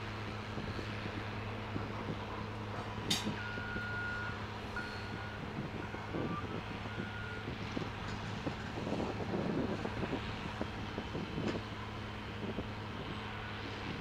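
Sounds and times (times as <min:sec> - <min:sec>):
diesel engine running: 0:00.0 - 0:14.0
reversing alarm beeps: 0:03.4 - 0:07.5.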